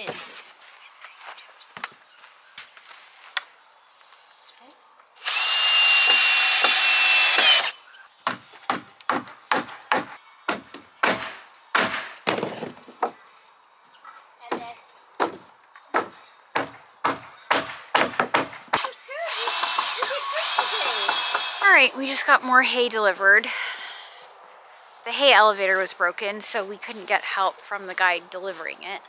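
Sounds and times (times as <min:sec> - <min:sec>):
power drill driving screw into wood: 0:05.2 - 0:07.8, 0:19.3 - 0:21.7.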